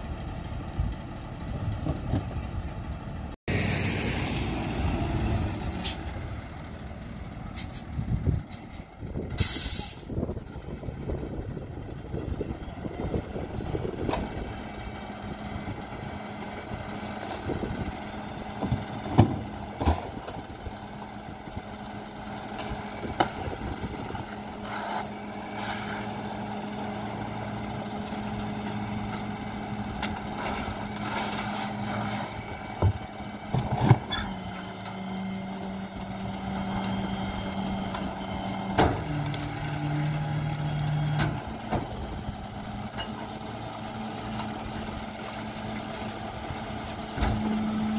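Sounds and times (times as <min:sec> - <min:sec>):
diesel engine idling: 0:00.0 - 0:33.7, 0:34.3 - 0:47.9.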